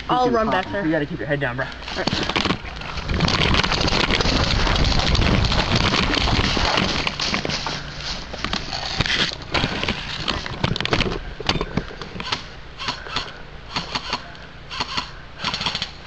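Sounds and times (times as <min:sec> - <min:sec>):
rustling gear: 0:01.8 - 0:12.3
footsteps through dry grass: 0:02.6 - 0:10.4
airsoft guns firing: 0:12.2 - 0:16.0.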